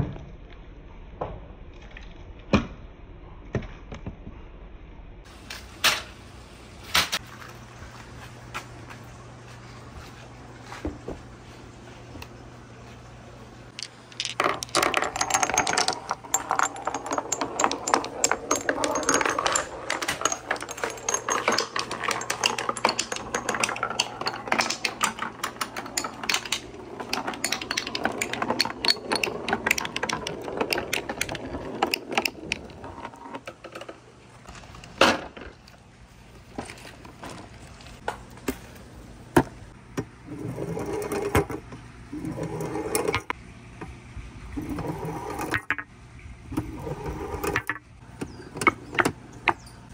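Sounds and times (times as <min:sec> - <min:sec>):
marbles clattering down wooden run: 0:13.7 - 0:34.0, 0:44.6 - 0:45.9, 0:46.6 - 0:47.8.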